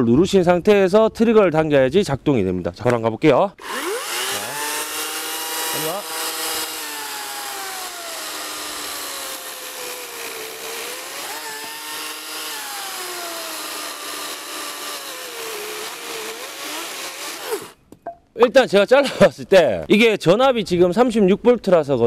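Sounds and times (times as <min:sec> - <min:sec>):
cordless chainsaw cutting log: 0:03.6 - 0:17.8.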